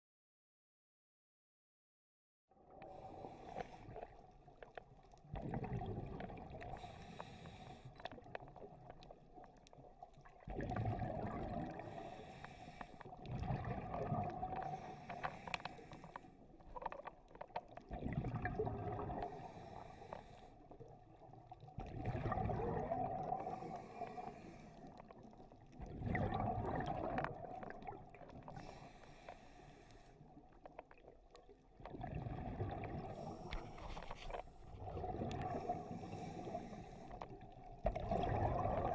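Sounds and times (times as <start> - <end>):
diver breathing through regulator: 2.8 - 4.1, 6.6 - 8.2, 11.7 - 13.2, 14.6 - 16.5, 19.2 - 20.7, 23.3 - 25.1, 28.4 - 30.3, 33.0 - 34.6, 35.2 - 37.4
exhaled bubbles rushing: 5.2 - 6.9, 10.2 - 12.2, 13.1 - 15.0, 17.8 - 19.5, 21.2 - 24.4, 25.1 - 28.7, 30.9 - 38.9.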